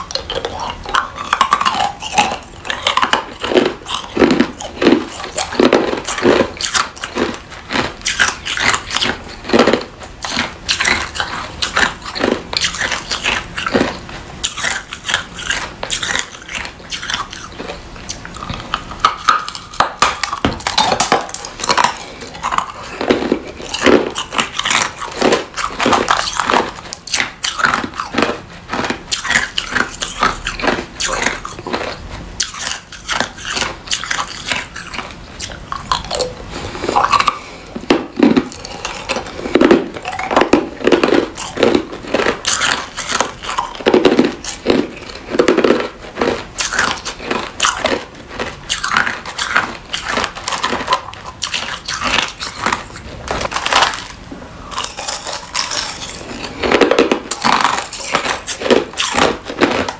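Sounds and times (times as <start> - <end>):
ice being chewed and crunched: 0.0 - 59.9.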